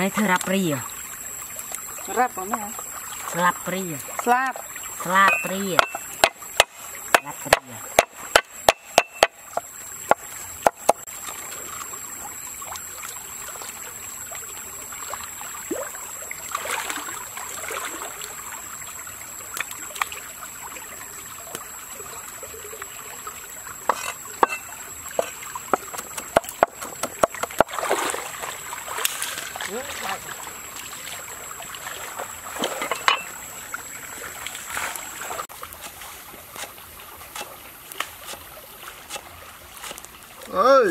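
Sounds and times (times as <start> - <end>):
stream running: 0.0 - 40.9
cleaver chopping on a board: 5.3 - 11.0, 23.9 - 24.6, 25.2 - 27.7.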